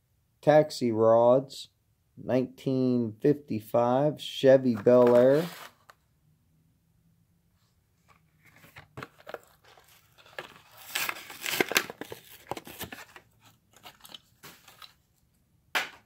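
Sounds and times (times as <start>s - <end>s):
plastic packaging crackling: 9.0s - 13.2s.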